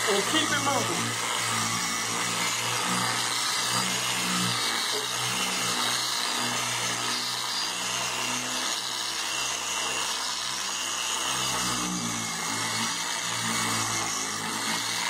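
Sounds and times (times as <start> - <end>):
polisher motor whirring: 0.0 - 15.0.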